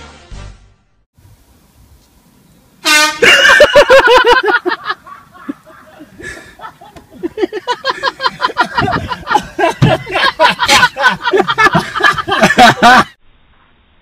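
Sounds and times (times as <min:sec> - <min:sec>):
air horn blast: 0:02.8 - 0:03.5
bursts of laughter: 0:03.1 - 0:13.2.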